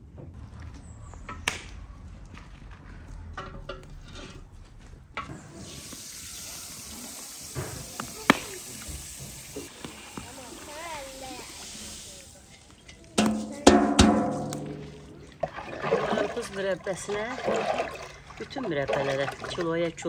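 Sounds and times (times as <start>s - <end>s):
metal pot knocking on iron stand: 13.2s - 15.4s.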